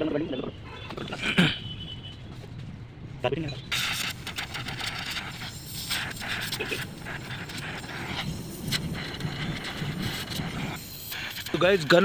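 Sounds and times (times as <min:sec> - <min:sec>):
cutting torch hissing: 0:03.7 - 0:12.0
sparks crackling off hot steel: 0:03.7 - 0:12.0.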